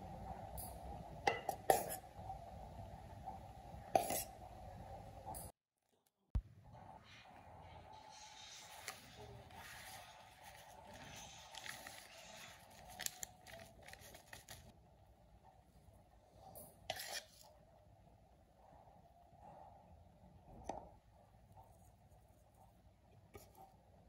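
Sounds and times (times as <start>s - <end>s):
plastic sachet crinkling: 10.4s - 14.7s.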